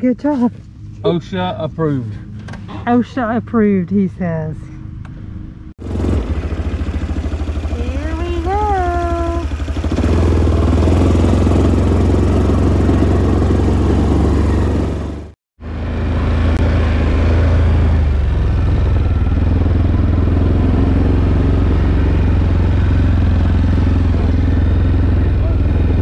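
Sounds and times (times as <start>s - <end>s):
atv engine running: 5.8s - 26.0s.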